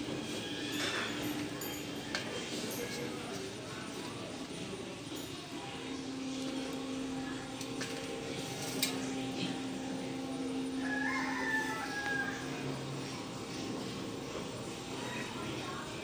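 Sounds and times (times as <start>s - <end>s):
steady low hum: 3.8s - 16.0s
rooster call: 10.8s - 12.7s.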